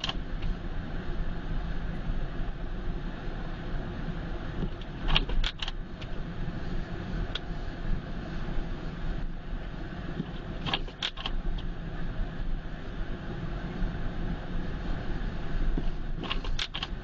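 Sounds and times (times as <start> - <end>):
engine and tyre rumble: 0.0 - 17.0
light clicks and rattles: 4.6 - 6.2.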